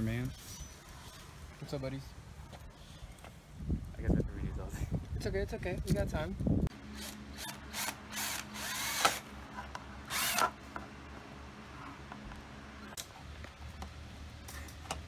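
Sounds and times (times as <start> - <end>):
cordless drill cutting plastic: 7.0 - 9.2, 10.1 - 10.6.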